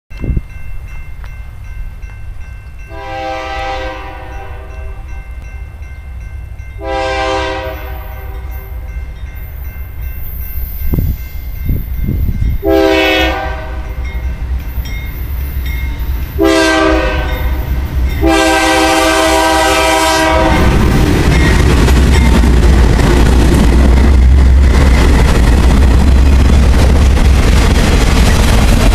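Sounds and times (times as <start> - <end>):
diesel locomotive engines: 0.1 - 28.9
train wheels on rails: 0.1 - 28.9
locomotive air horn blasts: 2.9 - 5.1, 6.8 - 8.5, 12.6 - 14.0, 16.4 - 20.9.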